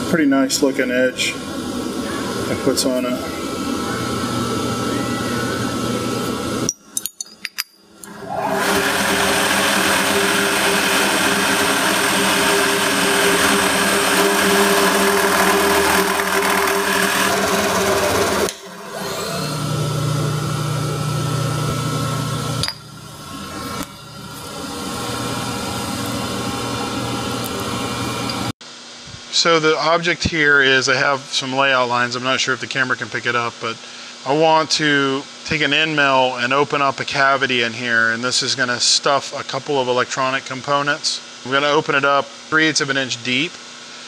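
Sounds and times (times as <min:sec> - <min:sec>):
milling machine whirring: 0:00.6 - 0:06.8, 0:08.0 - 0:28.5.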